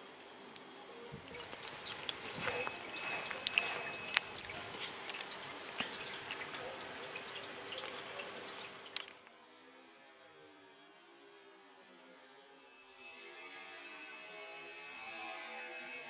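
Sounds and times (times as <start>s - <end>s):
faint hum: 0.0s - 15.3s
rain dripping: 0.2s - 9.2s.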